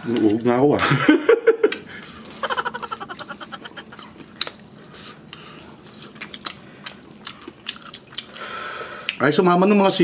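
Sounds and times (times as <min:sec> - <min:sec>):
chewing: 0:01.7 - 0:09.2.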